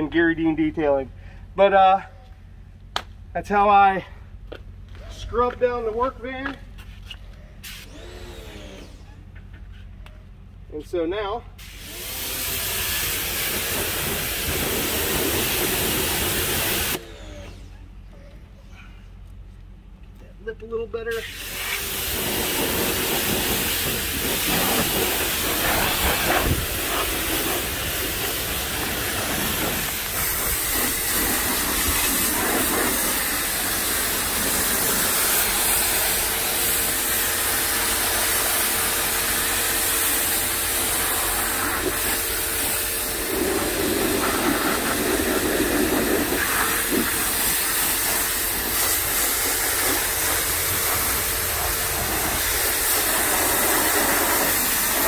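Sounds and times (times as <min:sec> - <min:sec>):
pressure washer hum: 0:04.9 - 0:09.9, 0:11.6 - 0:18.1, 0:21.0 - 0:55.0
water spray hissing on metal: 0:11.6 - 0:17.0, 0:21.2 - 0:55.0.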